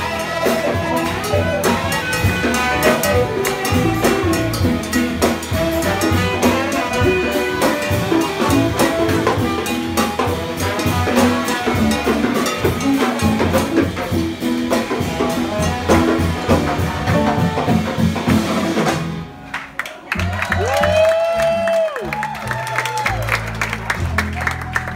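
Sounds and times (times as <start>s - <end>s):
tenor saxophone: 0.0s - 13.5s
drum hits: 0.0s - 19.3s
trombone: 0.0s - 19.3s
jazz band playing: 0.0s - 24.9s.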